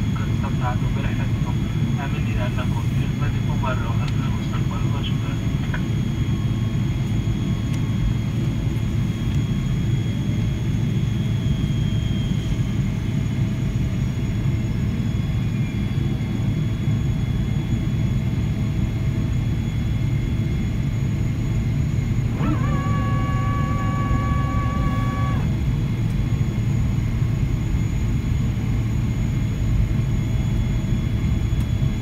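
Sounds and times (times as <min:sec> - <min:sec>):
faint steady whines: 0:00.0 - 0:32.0
jet engine rumble: 0:00.0 - 0:32.0
clear steady tone: 0:22.4 - 0:25.5.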